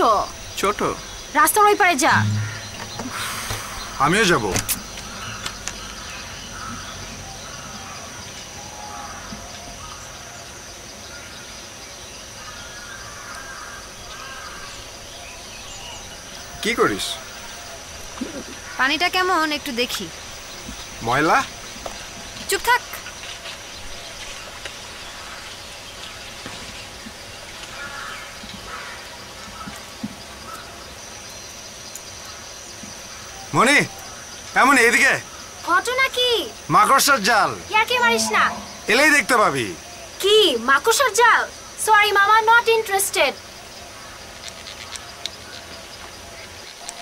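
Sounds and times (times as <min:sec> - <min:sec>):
faint bird calls: 0:00.0 - 0:47.0
steady background hiss: 0:00.0 - 0:47.0
thin steady high tone: 0:01.9 - 0:04.4.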